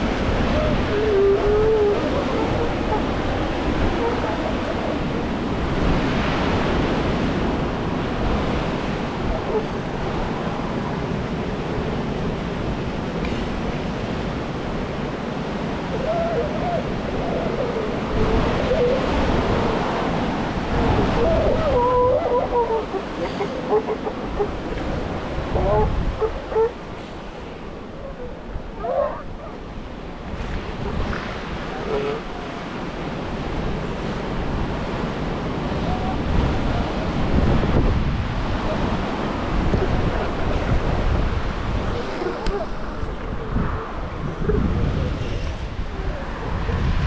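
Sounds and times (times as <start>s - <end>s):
surf washing: 0.0s - 47.0s
wind buffeting the microphone: 0.0s - 47.0s
elephant seals giving wavering calls: 0.2s - 6.1s, 15.7s - 29.8s, 30.6s - 32.9s, 41.7s - 46.9s.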